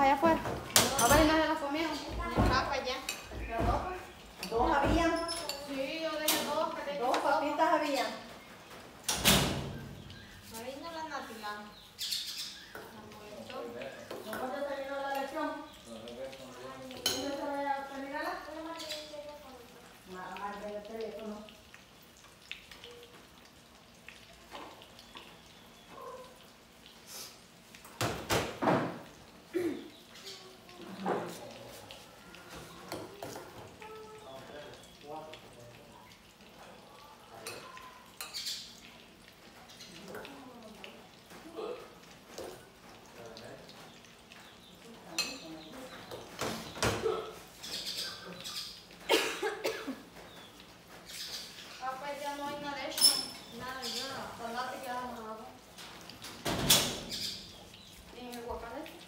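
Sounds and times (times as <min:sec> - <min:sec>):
faint taps and scrapes on plates: 0:12.7 - 0:15.4, 0:30.8 - 0:33.8
girl coughing: 0:29.5 - 0:29.9, 0:47.0 - 0:47.4, 0:49.1 - 0:50.0.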